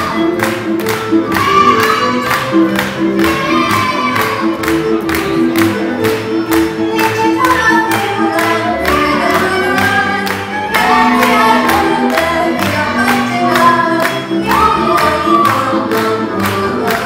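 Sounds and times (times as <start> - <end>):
group singing folk melody: 0.0 - 17.0.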